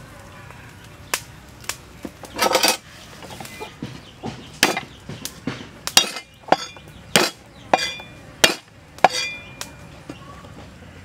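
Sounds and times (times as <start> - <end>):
cleaver chopping on wooden block: 3.8 - 9.3.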